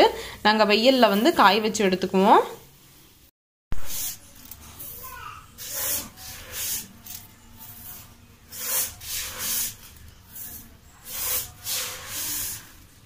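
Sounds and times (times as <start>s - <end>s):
wet grains rustling: 5.6s - 12.9s.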